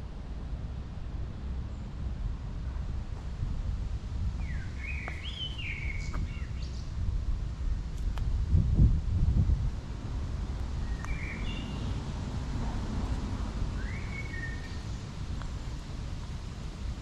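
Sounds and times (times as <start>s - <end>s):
steady low rumble: 0.0s - 17.0s
birds calling: 4.4s - 6.9s, 10.8s - 12.0s.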